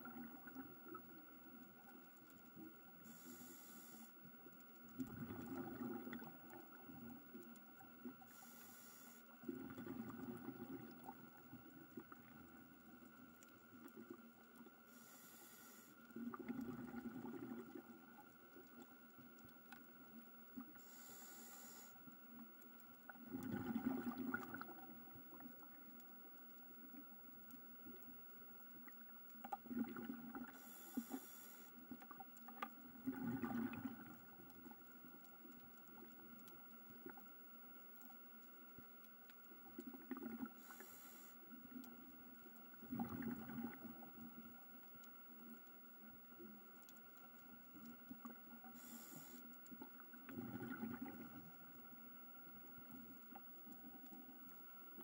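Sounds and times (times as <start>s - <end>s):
exhaled bubbling underwater: 0.0s - 3.5s, 4.8s - 8.3s, 9.4s - 14.6s, 16.1s - 20.9s, 23.0s - 31.2s, 31.8s - 37.4s, 39.4s - 55.0s
faint steady hum: 0.0s - 55.0s
regulator inhale hiss: 3.0s - 4.2s, 8.2s - 9.4s, 14.9s - 16.1s, 20.7s - 22.0s, 30.5s - 31.8s, 40.6s - 41.4s, 48.7s - 49.5s.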